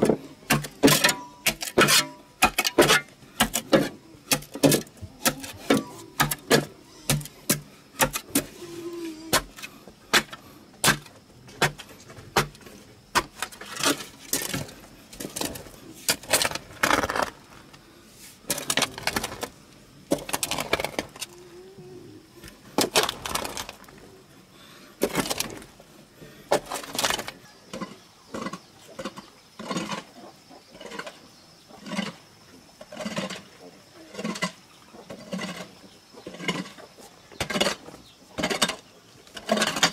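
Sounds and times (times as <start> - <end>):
hoe chopping into earth: 0.0 - 8.5, 9.3 - 14.7
shovel scraping soil: 0.0 - 17.6.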